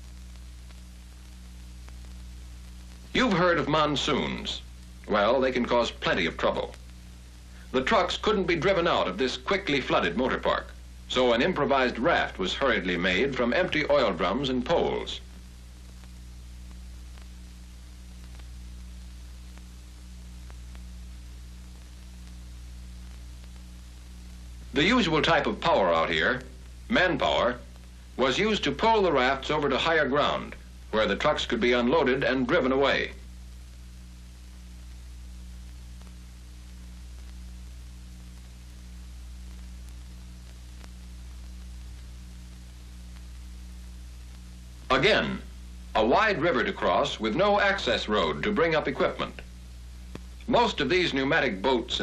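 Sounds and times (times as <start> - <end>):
faint clicks: 0.0 - 3.2, 15.2 - 24.8, 33.5 - 44.9, 50.0 - 50.5
film soundtrack hum and hiss: 0.0 - 52.0.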